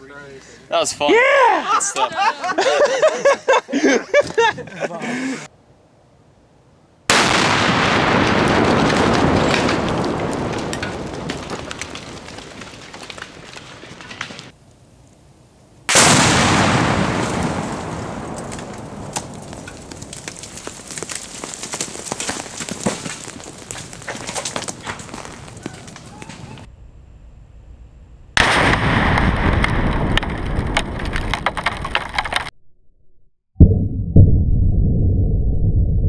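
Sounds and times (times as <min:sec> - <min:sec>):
loud explosion booms: 0:07.1 - 0:12.3, 0:15.9 - 0:20.4, 0:28.3 - 0:31.6
debris crackles and thuds: 0:07.4 - 0:14.5, 0:16.0 - 0:26.7, 0:28.4 - 0:32.5.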